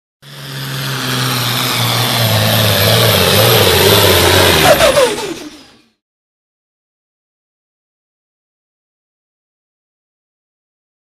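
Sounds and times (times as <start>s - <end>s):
short notes gliding downward: 0.2s - 5.9s
tractor diesel engine running hard: 0.2s - 6.0s.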